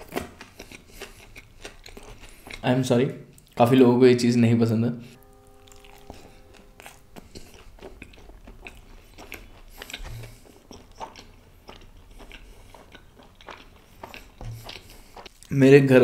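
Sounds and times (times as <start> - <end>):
close chewing with wet smacks: 0.0 - 2.7, 3.3 - 3.6, 6.8 - 15.5.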